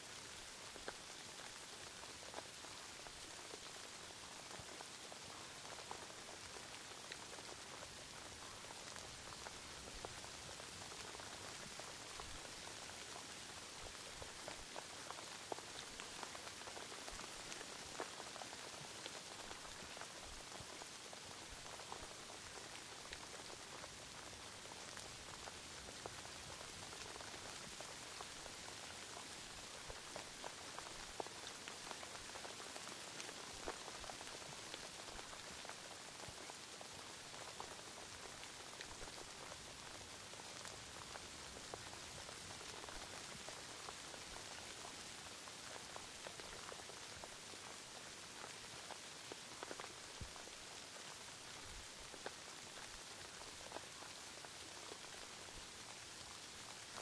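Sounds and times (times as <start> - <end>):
steady rain hiss: 0.0 - 57.0
raindrops ticking: 0.2 - 57.0.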